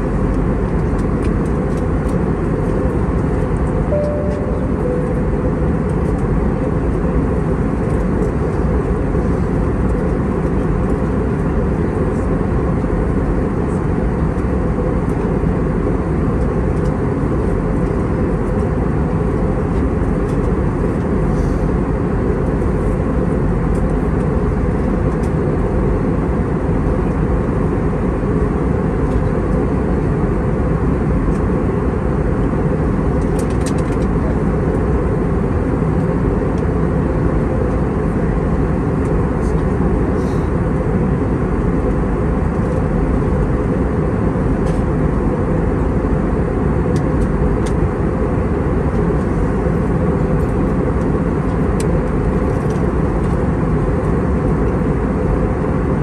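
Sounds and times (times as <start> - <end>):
airliner cabin rumble: 0.0 - 56.0.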